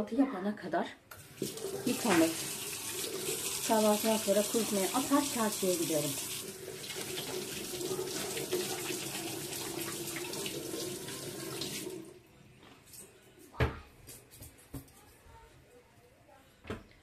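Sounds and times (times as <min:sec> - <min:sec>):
tap running into sink: 0:01.2 - 0:03.5, 0:06.8 - 0:10.4.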